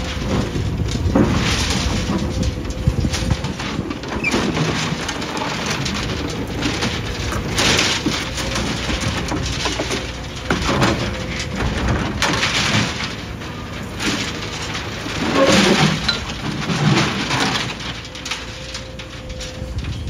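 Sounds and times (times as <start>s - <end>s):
concrete crunching: 0.0s - 20.0s
hydraulic excavator running: 0.0s - 20.0s
rubble sliding off: 0.0s - 20.0s.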